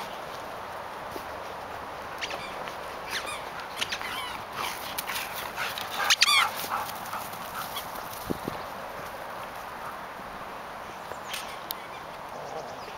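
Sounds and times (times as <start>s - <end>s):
dogs yelping and whining: 2.2s - 4.8s.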